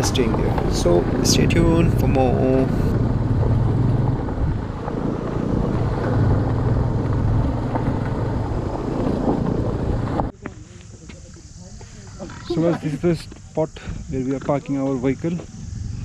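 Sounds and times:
motorcycle engine running: 0.0 - 10.3
dirt trail ride noise: 0.0 - 16.0.

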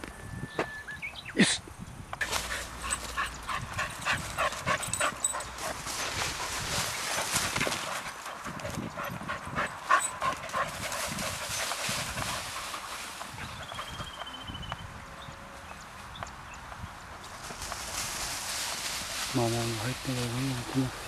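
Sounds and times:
dogs moving in grass: 2.2 - 14.5, 17.1 - 21.0
dogs panting: 2.2 - 14.5.

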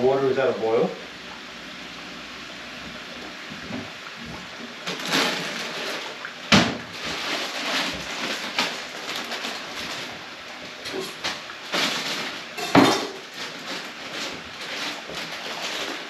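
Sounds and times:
chicken deep-frying in oil: 0.0 - 16.0
kitchen knocks and rustles: 3.5 - 10.2, 10.9 - 16.0.

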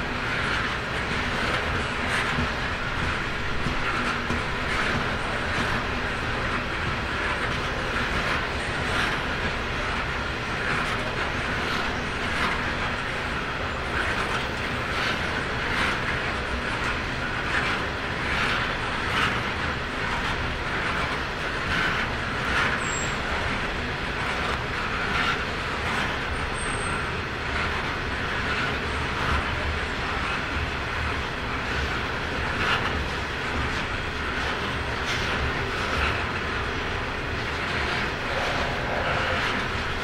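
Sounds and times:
train wheels rumbling on rails: 0.0 - 40.0.

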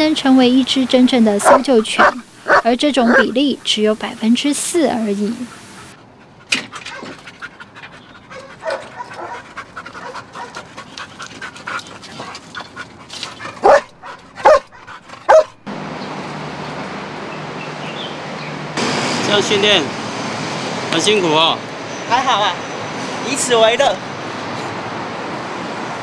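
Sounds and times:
steady background noise: 0.0 - 26.0
dog panting: 1.2 - 4.0, 4.9 - 15.5
dog barking: 1.4 - 3.4, 6.9 - 7.1, 8.6 - 9.4, 10.0 - 10.6, 13.6 - 15.6.

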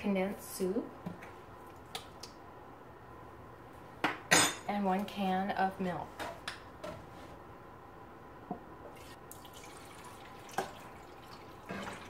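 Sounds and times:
milk trickling into pan: 9.1 - 12.0.

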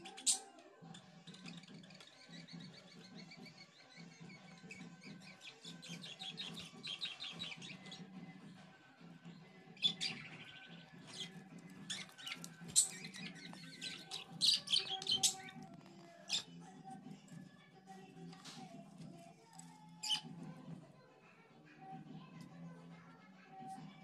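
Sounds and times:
budgerigars chirping: 4.3 - 8.0, 9.8 - 15.6, 20.0 - 20.2.

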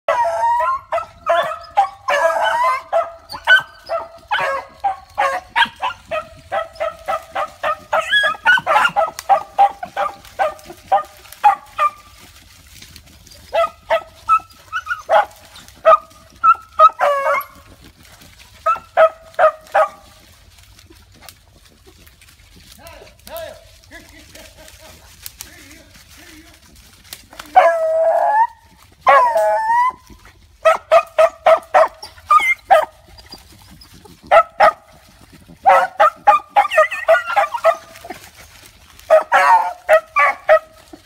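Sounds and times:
beagles baying: 0.1 - 12.4, 13.2 - 17.7, 27.4 - 33.6, 34.3 - 41.0.

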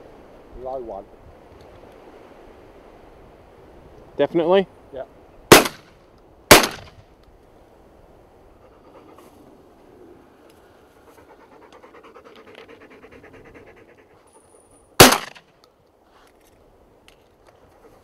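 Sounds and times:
loud shotgun shot: 5.5 - 7.0, 15.0 - 15.5.

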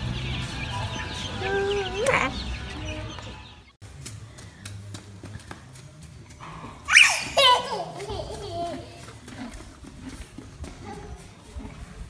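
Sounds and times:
baby chick peeping: 0.0 - 3.8.

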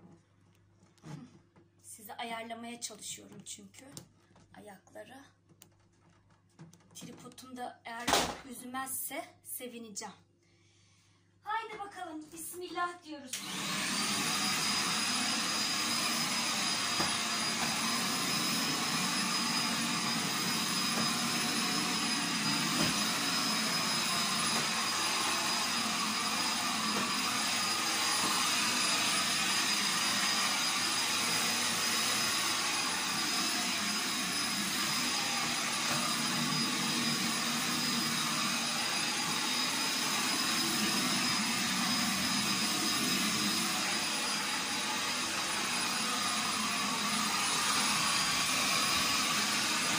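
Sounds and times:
vacuum cleaner running: 13.3 - 49.9.

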